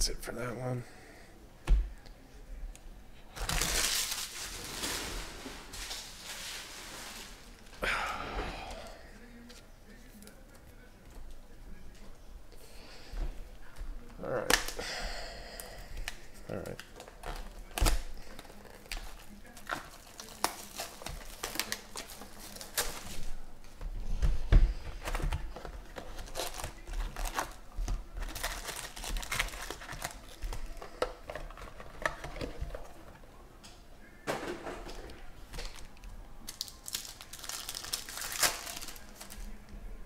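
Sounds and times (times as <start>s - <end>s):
foil pack tearing: 3.3s - 7.6s, 16.1s - 23.3s, 25.1s - 32.9s, 36.5s - 39.5s
packaging crinkling and tearing: 3.3s - 7.7s, 16.0s - 23.4s, 25.0s - 33.2s, 35.5s - 39.6s.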